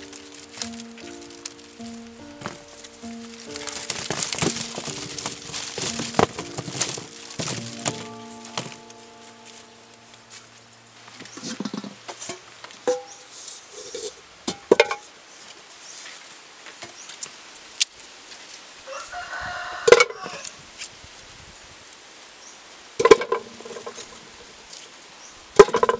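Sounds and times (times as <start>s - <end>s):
rooster crowing: 18.8s - 20.6s.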